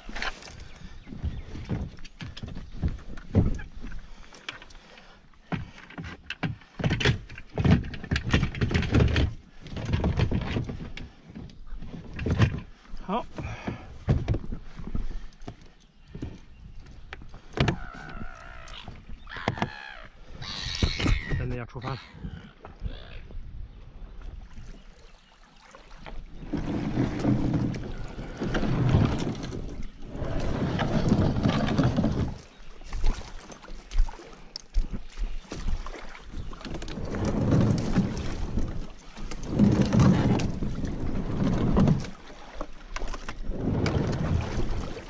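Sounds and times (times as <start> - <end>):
kayak hull scraping on concrete: 26.0 - 32.7, 36.7 - 44.9.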